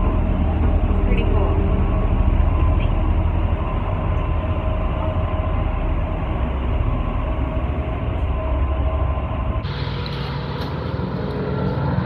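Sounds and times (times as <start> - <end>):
ferry engines rumbling: 0.0 - 12.0.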